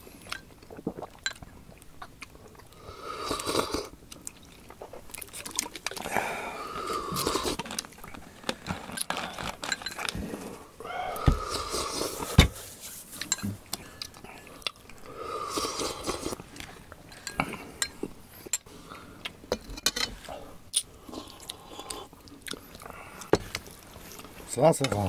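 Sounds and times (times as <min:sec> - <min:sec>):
slurping: 0:02.5 - 0:18.0
chewing: 0:20.7 - 0:24.3.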